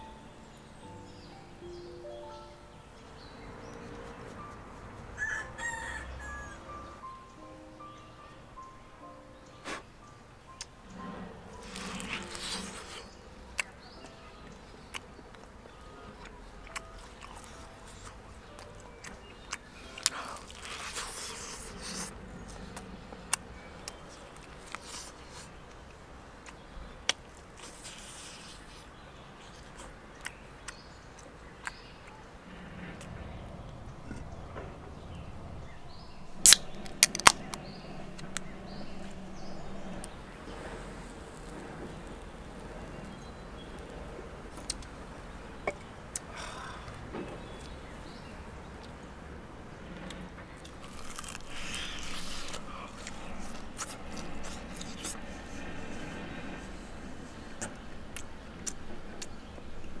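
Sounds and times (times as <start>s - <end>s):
biting into meat: 11.6s - 13.7s, 16.7s - 25.6s, 36.4s - 40.2s, 50.6s - 56.1s
beer can tab cracking open: 36.4s - 37.4s.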